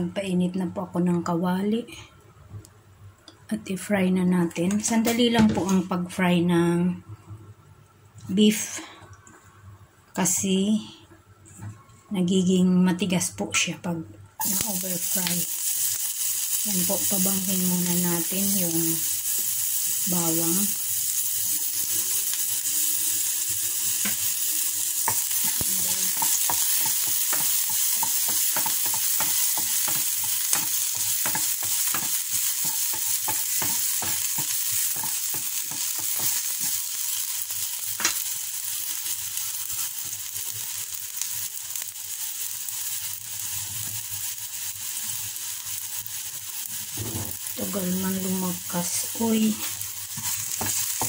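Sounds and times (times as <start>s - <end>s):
garlic sizzling in oil: 14.4s - 51.0s
utensil clicking against pan: 25.0s - 36.8s.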